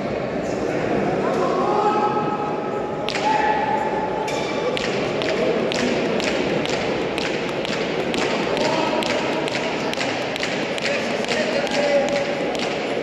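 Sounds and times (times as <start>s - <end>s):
background murmur: 0.0s - 13.0s
sharp taps and knocks: 4.3s - 13.0s.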